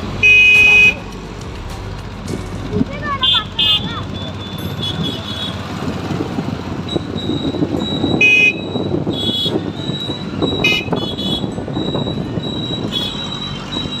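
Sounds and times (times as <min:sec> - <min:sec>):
engine and road noise: 0:00.0 - 0:14.0
vehicle horns honking: 0:00.2 - 0:01.1, 0:03.2 - 0:05.9, 0:08.1 - 0:09.9, 0:10.5 - 0:11.8, 0:12.8 - 0:13.6.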